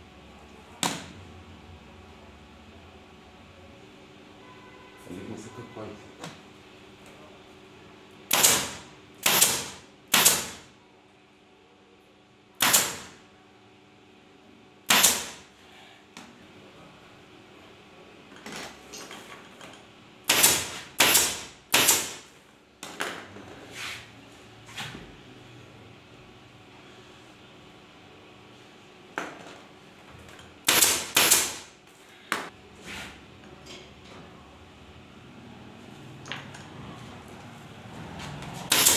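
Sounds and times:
staple gun shots: 8.3 - 10.6, 12.6 - 13.2, 14.9 - 15.4, 20.3 - 22.2, 30.6 - 31.6, 38.7 - 38.9.

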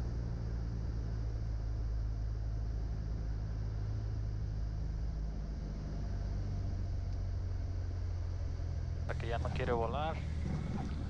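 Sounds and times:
propeller plane engine running: 0.0 - 11.0
airflow noise: 9.1 - 11.0.

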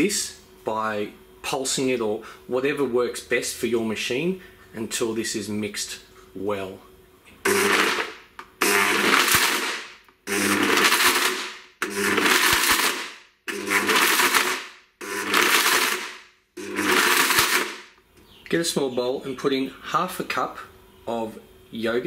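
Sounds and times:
blender chopping frozen fruit: 7.4 - 18.0.

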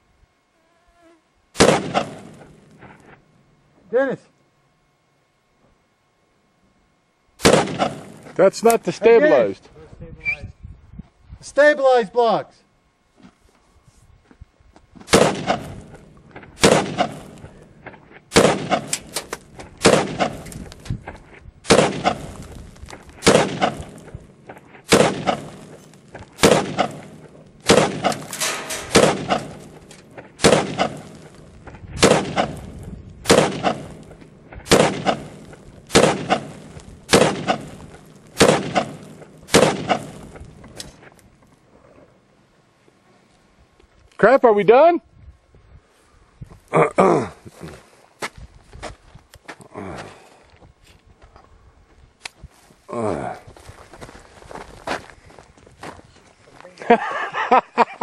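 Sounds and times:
rifle gunshots with echo: 1.6 - 2.5, 7.4 - 8.3, 15.1 - 17.5, 18.3 - 20.6, 21.7 - 22.4, 23.2 - 25.8, 26.4 - 40.4.

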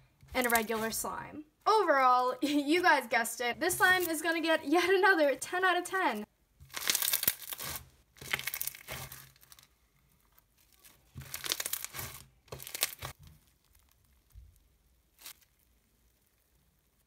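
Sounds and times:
foam slime crunching: 6.6 - 17.0.

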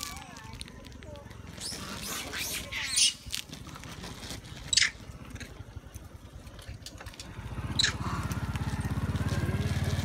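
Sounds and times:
monkey squeaks: 1.5 - 3.4, 4.6 - 5.0, 7.8 - 8.0
motorcycle engine running: 5.0 - 10.0.

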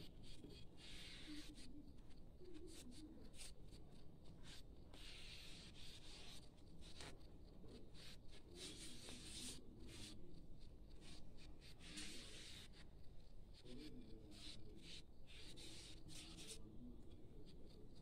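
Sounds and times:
glue nozzle scratching on card: 4.4 - 7.1.

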